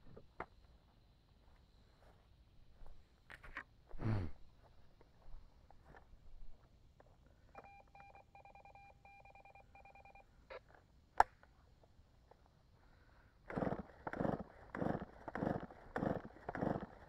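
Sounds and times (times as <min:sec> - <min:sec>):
short electronic beeps: 0:07.6 - 0:10.3.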